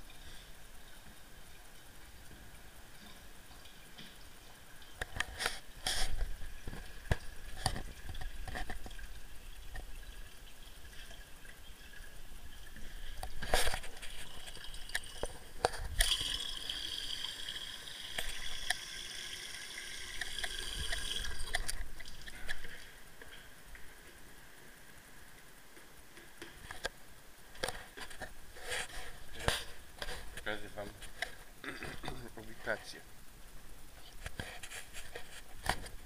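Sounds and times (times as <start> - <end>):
water running and trickling: 5.6 - 23.0.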